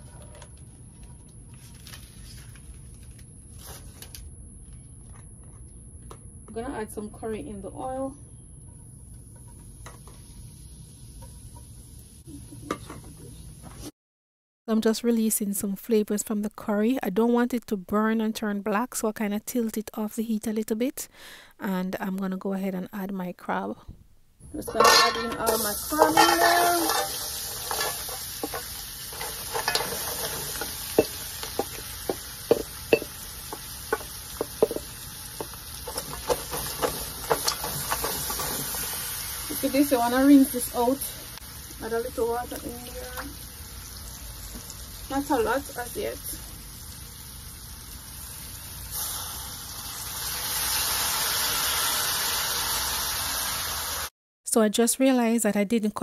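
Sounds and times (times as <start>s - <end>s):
crab sizzling in hot oil: 9.2s - 13.5s, 24.8s - 54.1s.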